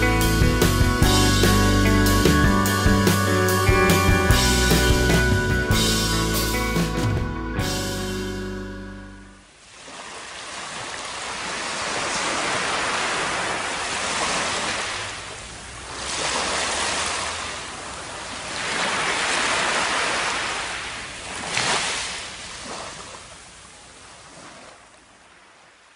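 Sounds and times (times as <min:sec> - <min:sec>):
small waves washing on sand: 0:09.6 - 0:25.9.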